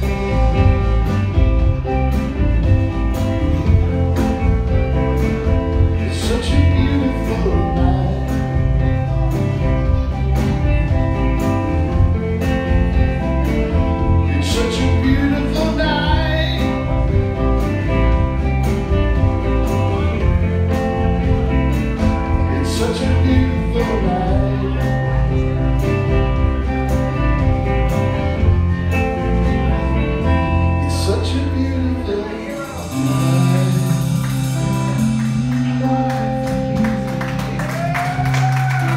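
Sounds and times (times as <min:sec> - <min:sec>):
bass guitar: 0:00.0 - 0:38.9
drum kit: 0:00.0 - 0:38.9
electric guitar: 0:00.0 - 0:38.9
man singing: 0:05.8 - 0:09.1, 0:14.0 - 0:17.2, 0:22.0 - 0:26.0, 0:30.6 - 0:35.2.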